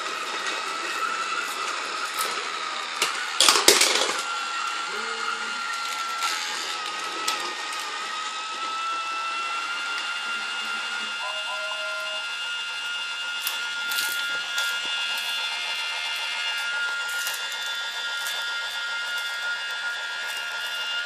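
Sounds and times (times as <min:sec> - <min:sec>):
wheels rattling on plastic track: 0:00.0 - 0:04.3, 0:05.6 - 0:08.1
toy train motor whine: 0:00.0 - 0:21.0.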